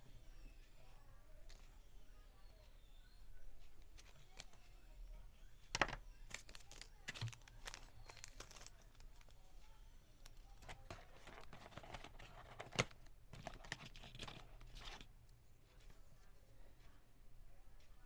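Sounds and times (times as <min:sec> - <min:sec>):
packaging crinkling and rustling: 0:05.8 - 0:09.4, 0:10.2 - 0:15.1.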